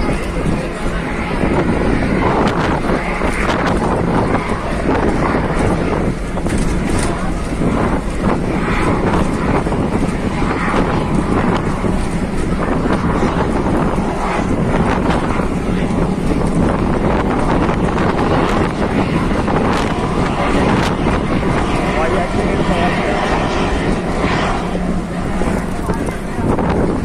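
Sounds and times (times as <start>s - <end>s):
road vehicle rumble: 0.0s - 27.0s
wind buffeting microphone: 0.0s - 27.0s.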